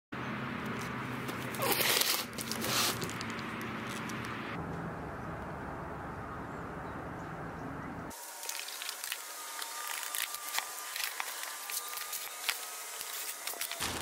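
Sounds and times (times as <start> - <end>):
handling rustle: 0.7 - 4.5.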